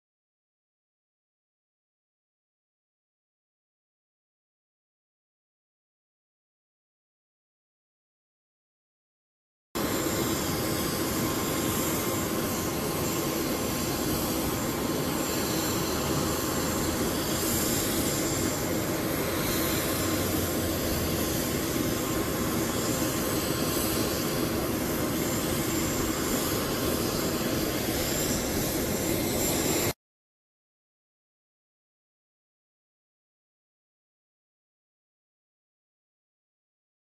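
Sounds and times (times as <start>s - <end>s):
high constant whine: 9.8s - 30.0s
jet engines roaring: 9.8s - 30.0s.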